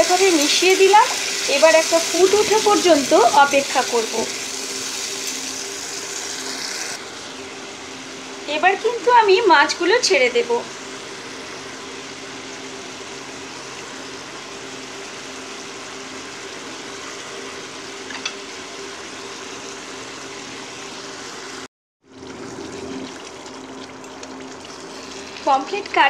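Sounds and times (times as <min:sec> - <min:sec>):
curry bubbling in a pan: 0:22.1 - 0:25.6.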